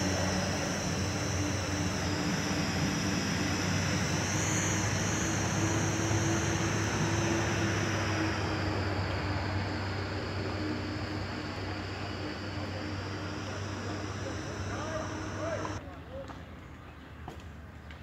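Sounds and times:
vehicle engine droning: 0.0 - 15.8
high-pitched hiss: 4.7 - 15.8.

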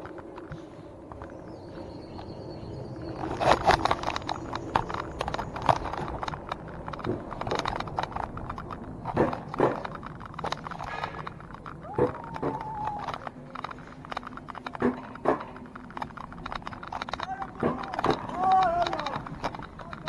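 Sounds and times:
coaster wheels clacking and rattling: 0.0 - 20.0.

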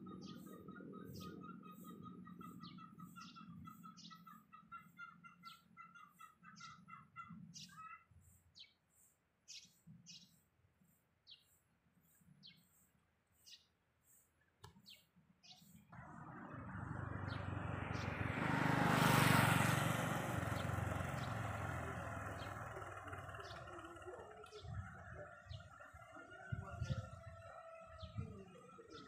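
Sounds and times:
quick repeated bird notes: 0.0 - 15.9
high thin bird chirps: 11.2 - 15.9.

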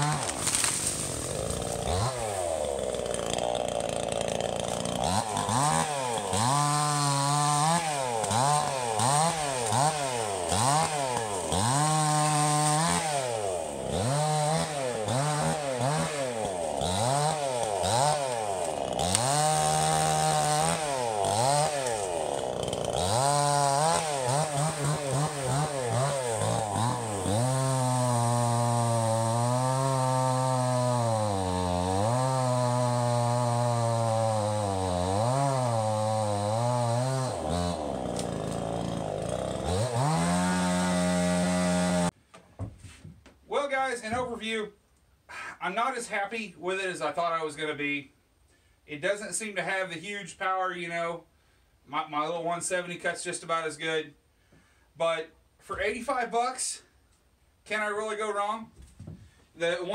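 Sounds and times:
chainsaw revving: 0.0 - 42.2.

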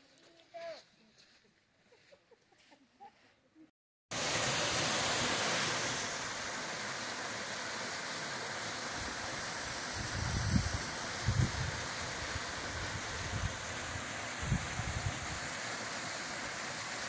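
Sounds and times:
waterfall pouring onto rocks: 4.1 - 17.0.

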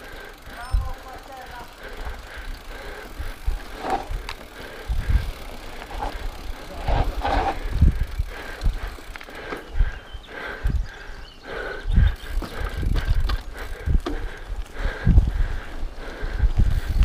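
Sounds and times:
bike rattling: 0.0 - 17.0
bike tyres crunching on dirt: 0.0 - 17.0
low thumps of wheels on bumps: 2.0 - 10.9, 12.0 - 15.6.

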